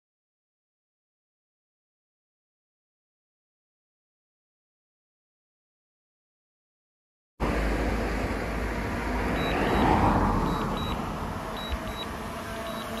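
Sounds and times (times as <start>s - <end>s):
drone propellers buzzing: 7.4s - 13.0s.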